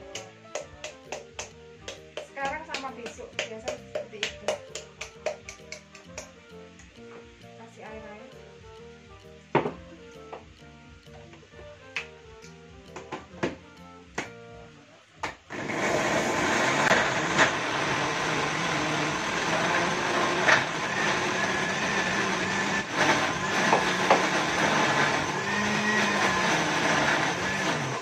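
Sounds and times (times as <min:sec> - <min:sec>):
blender jar knocks: 0:09.6 - 0:09.8
blender motor grinding: 0:15.5 - 0:28.0.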